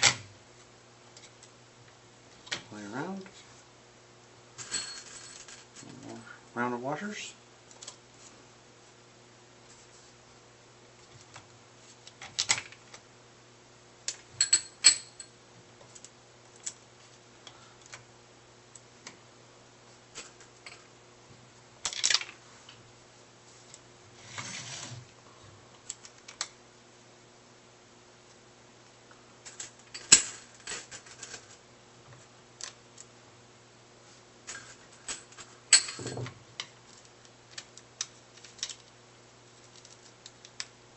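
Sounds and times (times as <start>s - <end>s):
faint steady hum: 0.0s - 40.9s
short scraping rustle: 24.2s - 25.0s.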